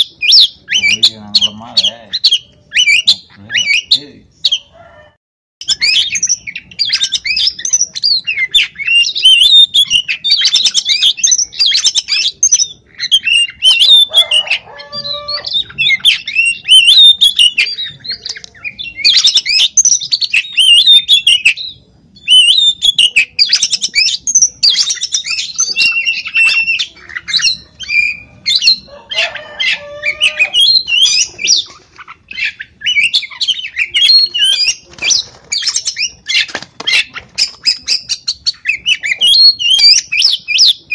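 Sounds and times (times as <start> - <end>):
songbird singing whistles: 0.0 - 4.6, 5.6 - 31.7, 32.3 - 40.9.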